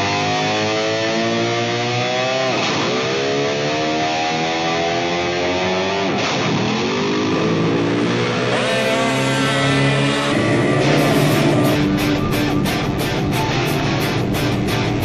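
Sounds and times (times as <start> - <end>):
guitar-driven background music: 0.0 - 15.0
racing quad engines accelerating: 0.0 - 15.0.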